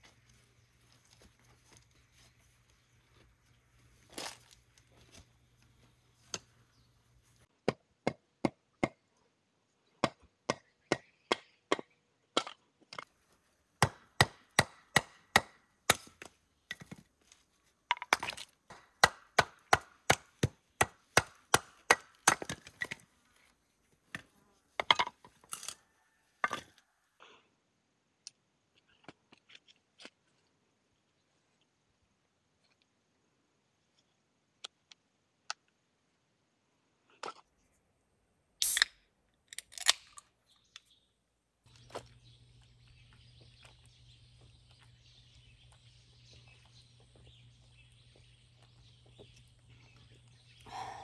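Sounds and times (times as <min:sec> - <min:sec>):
firewood being chopped: 0:13.8 - 0:17.0, 0:17.9 - 0:23.0.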